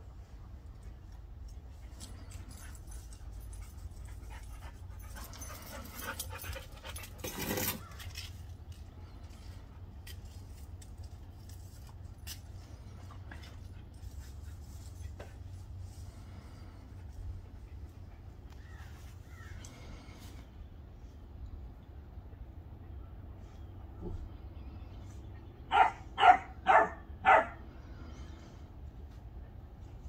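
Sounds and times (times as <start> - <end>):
puppies playing: 0.0 - 20.5.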